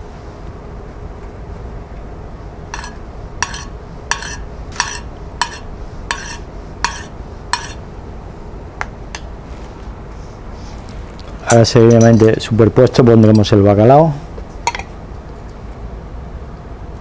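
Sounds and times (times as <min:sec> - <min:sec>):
low steady hum: 0:00.0 - 0:17.0
metal spoon clinking on china: 0:11.5 - 0:12.4.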